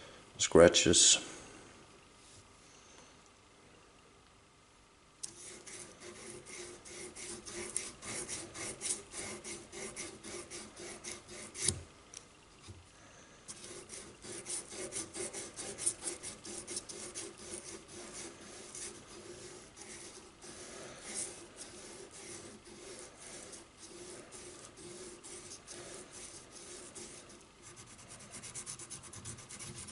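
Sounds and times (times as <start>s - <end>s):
sandpaper rubbing on steel: 5.4s - 11.8s, 13.5s - 29.9s.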